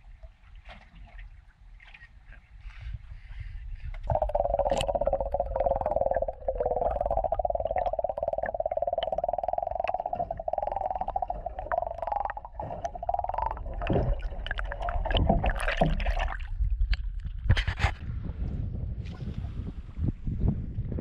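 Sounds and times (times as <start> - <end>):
underwater buzzing hum: 4.0 - 17.2.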